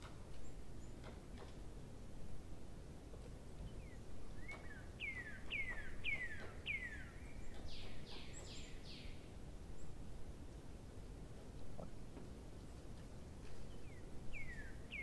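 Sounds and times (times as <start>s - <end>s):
bird whistling calls: 4.4s - 9.1s, 14.3s - 15.0s.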